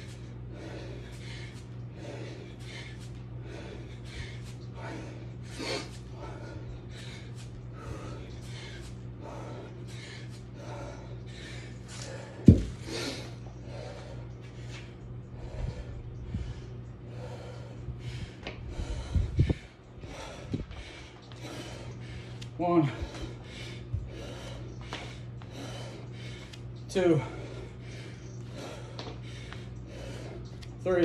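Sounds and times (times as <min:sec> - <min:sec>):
man breathing hard: 0:00.0 - 0:31.0
kettlebell thud on floor: 0:12.4 - 0:12.8.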